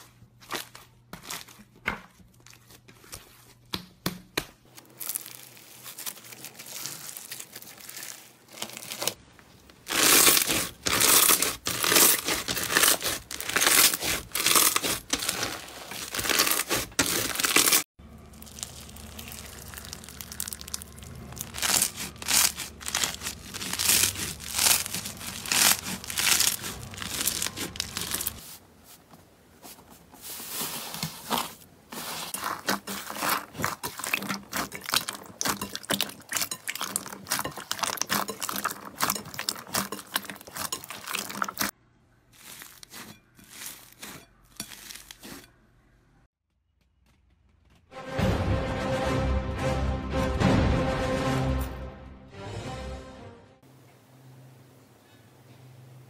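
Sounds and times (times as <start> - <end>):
crunchy slime crackling: 4.6 - 28.4, 31.3 - 45.5
slime popping and squelching: 9.9 - 28.4.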